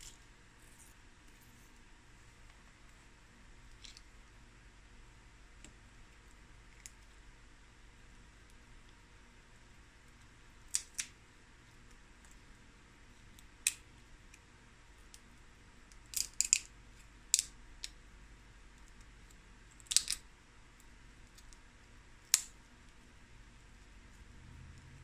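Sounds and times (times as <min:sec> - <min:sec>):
crab shells cracking: 0:19.8 - 0:20.2.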